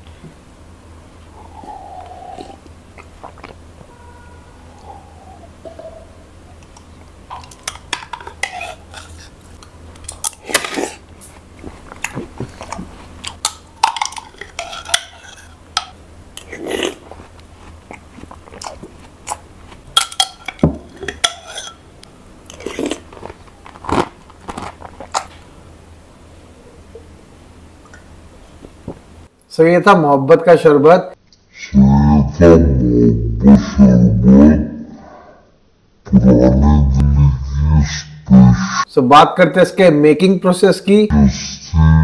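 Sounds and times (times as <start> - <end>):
chewing soft fruit: 1.5 - 3.8, 16.3 - 20.0.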